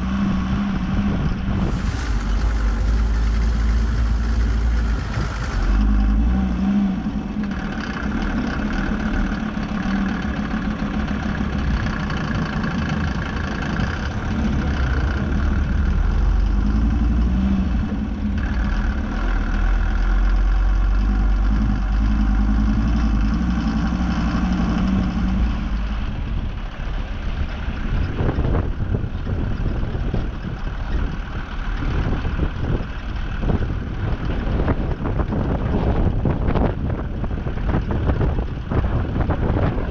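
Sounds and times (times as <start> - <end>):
vehicle engine humming: 0.0 - 39.9
rough uneven rushing noise: 1.5 - 6.0.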